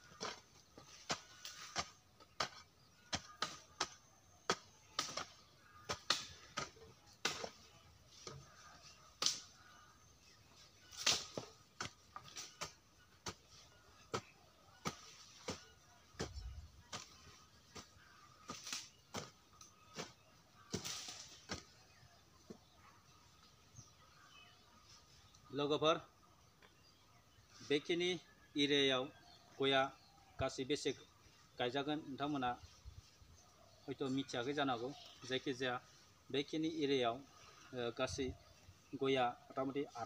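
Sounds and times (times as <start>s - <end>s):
hoe chopping soil: 0.0s - 22.8s.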